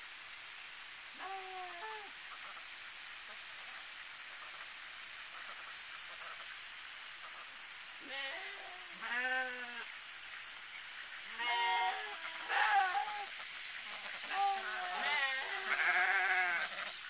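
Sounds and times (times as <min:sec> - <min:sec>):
steady hiss: 0:00.0 - 0:17.0
animal call: 0:08.0 - 0:09.9, 0:11.3 - 0:17.0.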